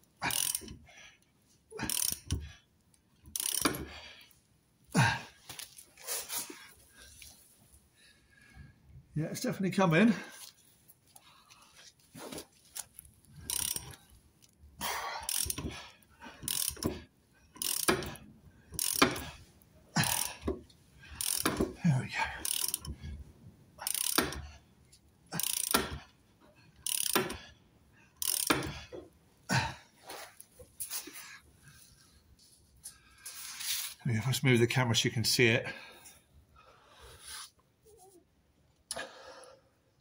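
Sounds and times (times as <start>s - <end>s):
ratchet wrench clicking: 0.2s - 0.8s, 1.8s - 2.5s, 3.2s - 3.9s, 13.4s - 14.0s, 15.3s - 17.0s, 17.6s - 19.3s, 20.0s - 20.5s, 21.1s - 21.8s, 22.4s - 23.0s, 23.8s - 24.5s, 25.4s - 26.0s, 26.8s - 27.4s, 28.2s - 28.9s.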